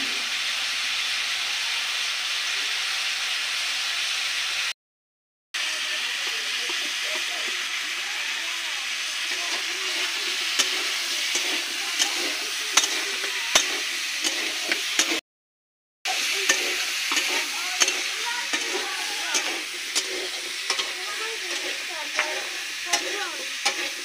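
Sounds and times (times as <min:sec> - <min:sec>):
potatoes sizzling in a pan: 0:00.0 - 0:04.7, 0:05.6 - 0:15.2, 0:16.1 - 0:24.0
crackles and spits: 0:05.6 - 0:15.2, 0:16.1 - 0:24.0.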